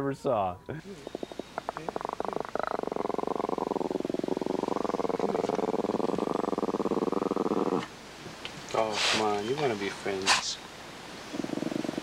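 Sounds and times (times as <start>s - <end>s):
dog growling: 1.0s - 7.9s, 11.3s - 12.0s.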